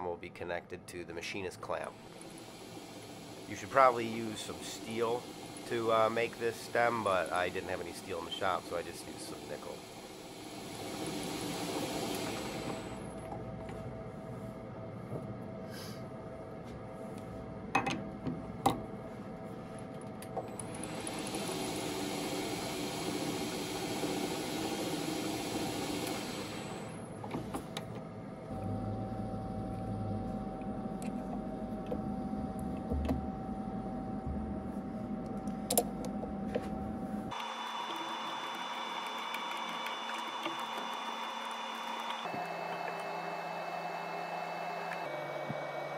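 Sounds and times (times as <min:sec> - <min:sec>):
metal lathe running: 0:01.9 - 0:13.2, 0:20.6 - 0:27.0, 0:37.3 - 0:45.9
tool bit cutting rod hiss: 0:02.1 - 0:13.0.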